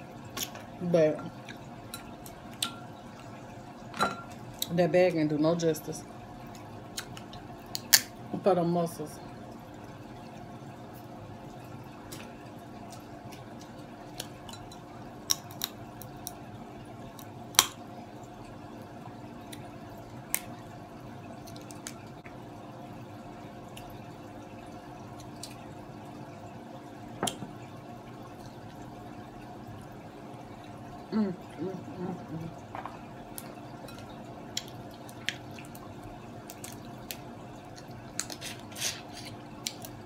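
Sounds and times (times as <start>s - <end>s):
steady low hum: 0.0s - 40.0s
crab shells cracking: 15.2s - 16.4s.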